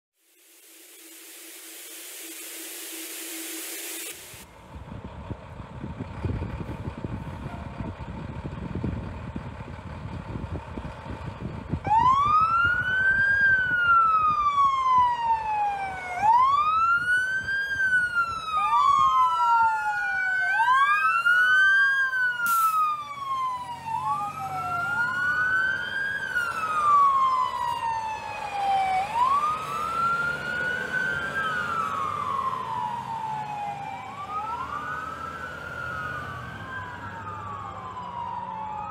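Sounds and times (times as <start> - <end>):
fire truck engines rumbling: 4.4 - 38.9
electronic wail siren: 11.8 - 38.9
second wail siren: 11.8 - 38.9.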